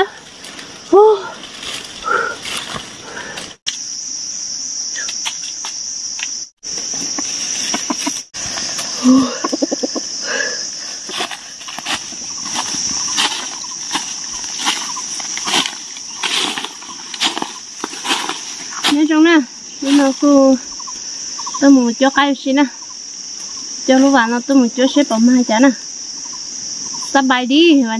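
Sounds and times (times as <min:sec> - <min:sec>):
insects droning: 0:00.0 - 0:27.9
dry leaves crackling: 0:00.1 - 0:03.5, 0:10.8 - 0:20.4.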